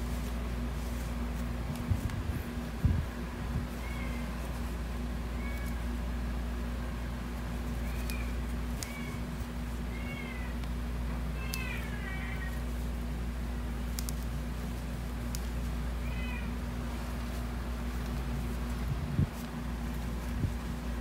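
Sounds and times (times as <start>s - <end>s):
low steady hum: 0.0s - 21.0s
cat meowing faintly: 3.7s - 4.4s, 16.0s - 16.6s.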